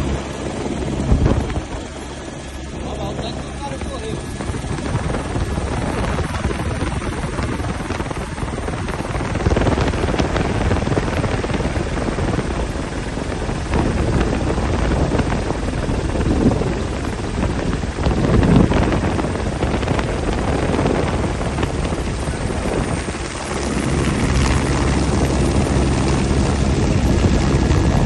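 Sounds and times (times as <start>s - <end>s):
helicopter rotor and engine: 0.0s - 28.0s.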